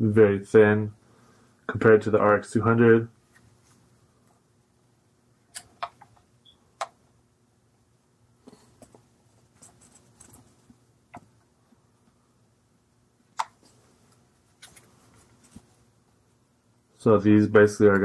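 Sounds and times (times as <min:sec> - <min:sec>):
soft rustling: 0:03.2 - 0:04.1, 0:08.4 - 0:10.8, 0:13.6 - 0:16.0.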